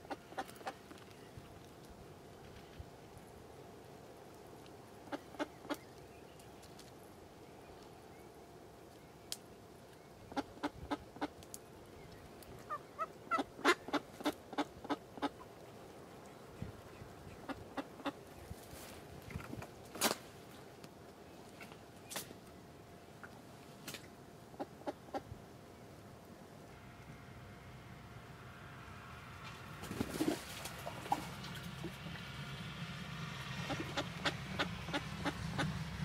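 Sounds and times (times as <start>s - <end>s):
duck quacking: 12.7s - 15.4s, 33.6s - 35.8s.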